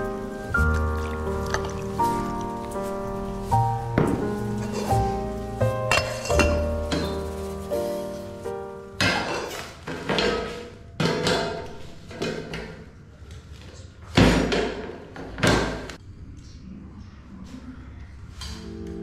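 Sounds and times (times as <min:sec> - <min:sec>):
metal pot and tray clanking: 0:05.9 - 0:07.3.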